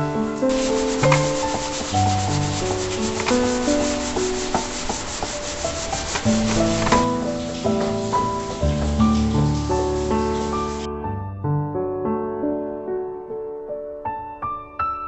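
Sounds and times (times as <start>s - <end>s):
soft piano-like music: 0.0s - 15.0s
scouring pad scrubbing a shelf: 0.1s - 10.9s.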